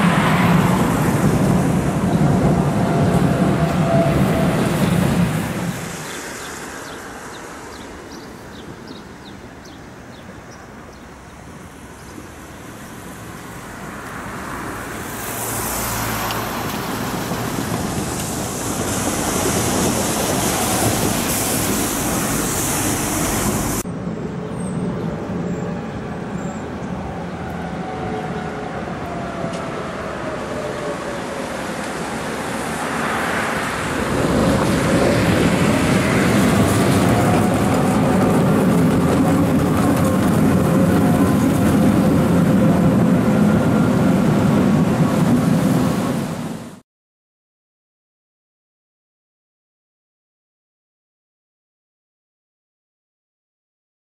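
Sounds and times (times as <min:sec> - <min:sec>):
tram running with faint whine: 0:00.0 - 0:46.8
tyre hiss on wet road: 0:04.8 - 0:08.6, 0:12.6 - 0:23.8.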